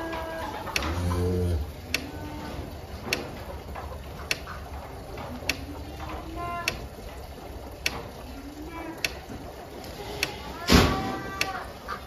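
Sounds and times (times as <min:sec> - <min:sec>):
sharp even ticks: 0:00.7 - 0:01.2, 0:04.2 - 0:04.8, 0:05.4 - 0:08.2, 0:09.0 - 0:09.3.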